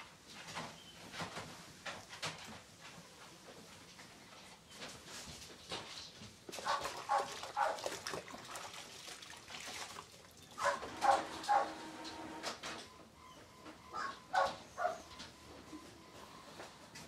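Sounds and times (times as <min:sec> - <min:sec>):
dog barking: 0:06.6 - 0:07.9, 0:10.6 - 0:11.8, 0:13.9 - 0:15.2.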